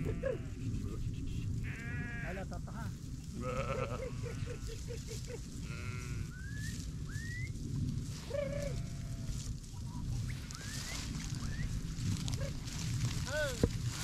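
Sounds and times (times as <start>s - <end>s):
sheep bleating: 0.0s - 0.6s, 1.6s - 2.4s, 3.4s - 4.8s, 5.6s - 6.4s
low rumble: 0.0s - 14.0s.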